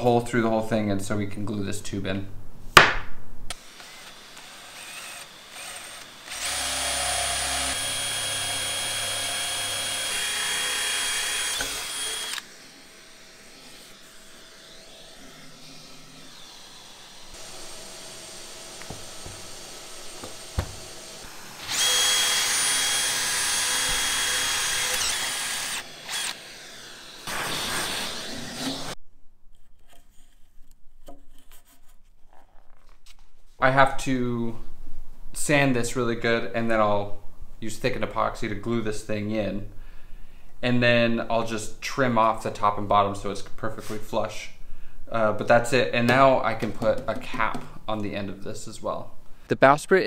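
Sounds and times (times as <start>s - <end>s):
cordless drill whining: 3.6s - 29.0s.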